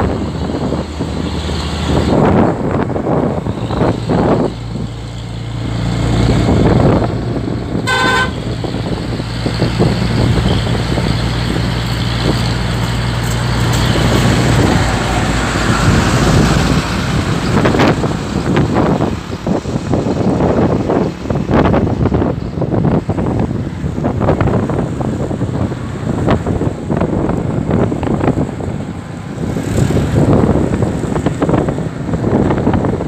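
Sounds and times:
truck engines and road noise: 0.0s - 33.0s
wind: 0.0s - 33.0s
vehicle horn toot: 7.8s - 8.5s.

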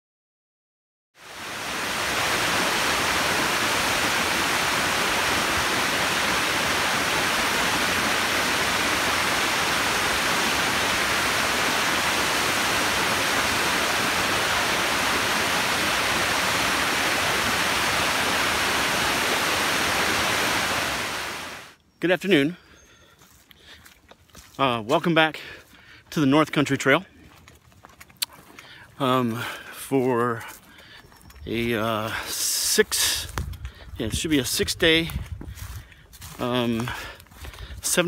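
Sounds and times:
waterfall rushing: 1.2s - 21.8s.

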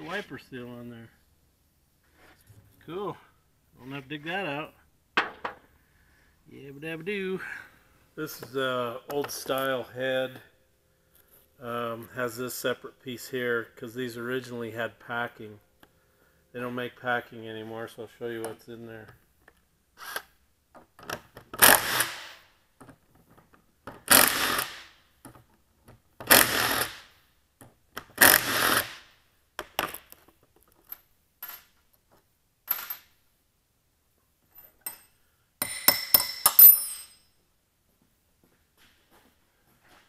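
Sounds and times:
impact wrench hammering bolts: 26.2s - 27.2s, 34.8s - 37.2s
sharp ringing metal clinks: 34.8s - 37.4s.

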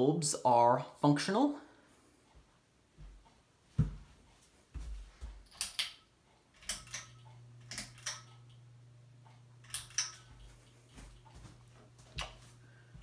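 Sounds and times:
fan motor buzzing: 5.4s - 13.0s
pull-chain switch clicking: 5.5s - 6.0s, 6.6s - 8.6s, 9.6s - 10.8s.

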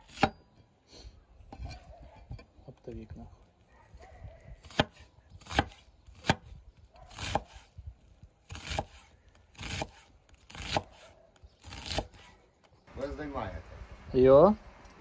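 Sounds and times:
knife chopping onion: 4.6s - 6.4s, 7.1s - 7.7s, 8.5s - 12.3s.

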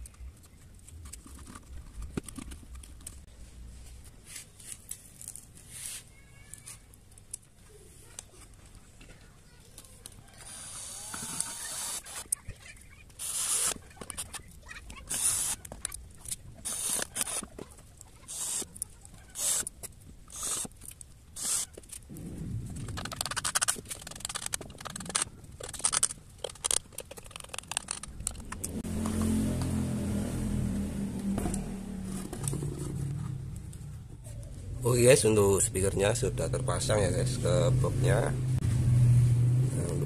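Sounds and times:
cordless drill driving screws: 10.4s - 12.3s, 13.2s - 13.8s, 15.1s - 15.6s, 16.6s - 17.4s, 18.3s - 18.7s, 19.4s - 19.7s, 20.3s - 20.7s, 21.4s - 21.7s.

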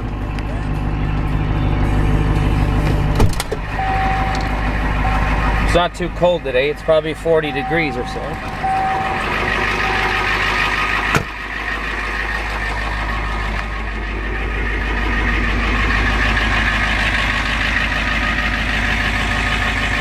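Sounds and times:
diesel truck engine idling: 0.0s - 20.0s
truck door shutting: 2.7s - 4.6s, 11.0s - 11.4s.

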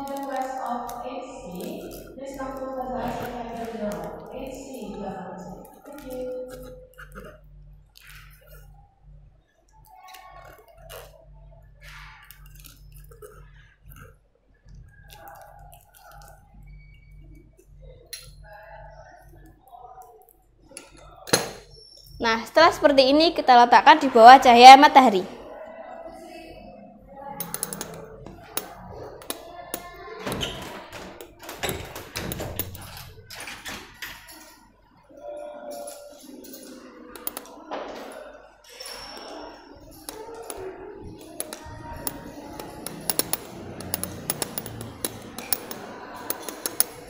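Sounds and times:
glassware taps and clinks: 27.4s - 29.9s, 40.1s - 47.0s
glass beaker clicking and knocking: 27.4s - 30.4s, 37.2s - 37.5s, 40.0s - 47.0s.

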